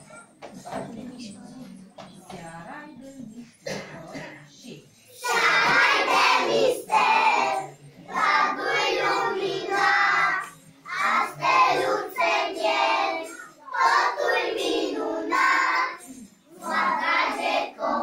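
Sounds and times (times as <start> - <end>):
children singing: 5.2 - 18.0.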